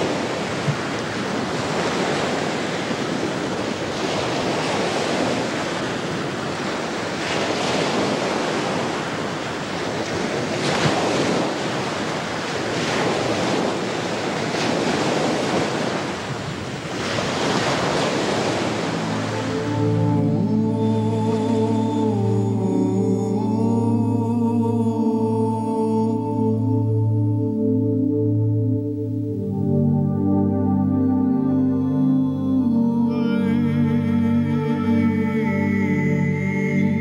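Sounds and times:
foaming sea water rushing: 0.0 - 22.6
wind: 0.0 - 37.0.

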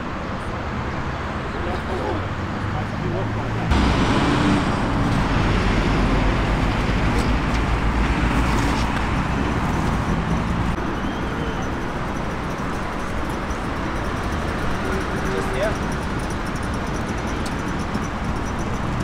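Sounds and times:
road traffic rumble: 0.0 - 19.0.

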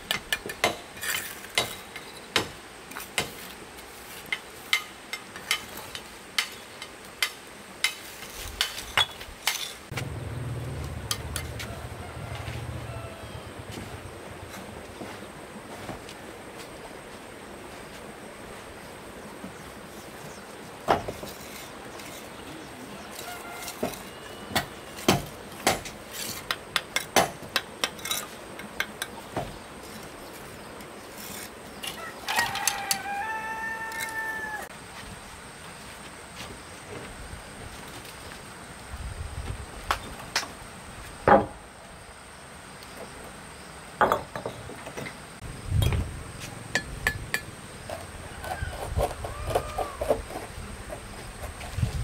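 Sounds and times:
steady low rumble: 9.9 - 15.0.

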